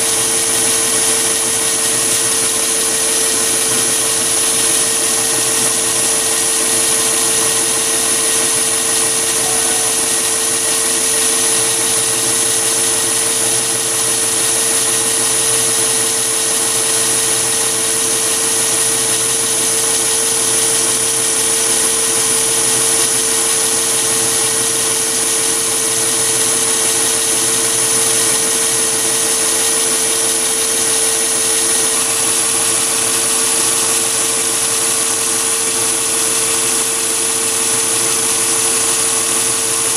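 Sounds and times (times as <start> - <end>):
end mill cutting metal: 0.0 - 20.1
lathe motor hum and whine: 0.0 - 39.9.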